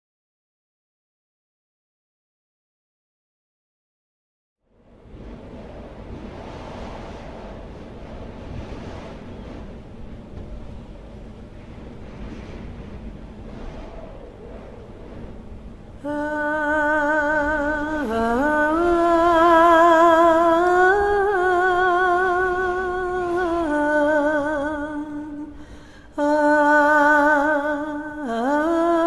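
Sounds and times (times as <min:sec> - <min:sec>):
faint low rushing noise: 0:04.7 - 0:22.6
woman humming: 0:16.0 - 0:25.6, 0:26.2 - 0:29.0.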